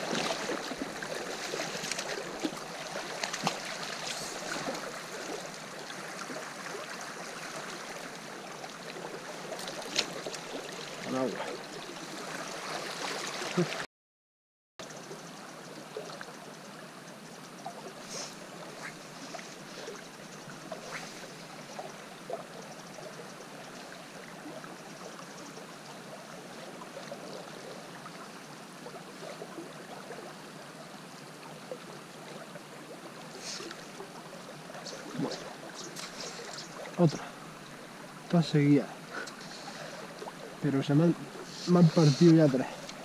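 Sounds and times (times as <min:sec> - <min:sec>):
river water flowing: 0:00.0 - 0:13.9, 0:14.8 - 0:43.0
faint scattered ticks: 0:31.1 - 0:43.0.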